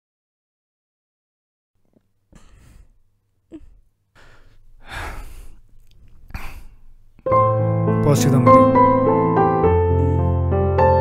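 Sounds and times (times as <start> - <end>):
person sighing tearfully: 2.3 - 7.0.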